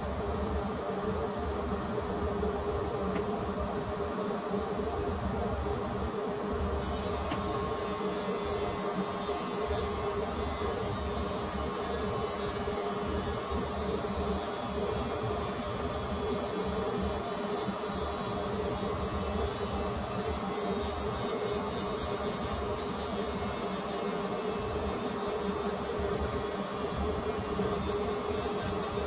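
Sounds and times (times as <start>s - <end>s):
electric hair clippers humming: 6.8s - 29.0s.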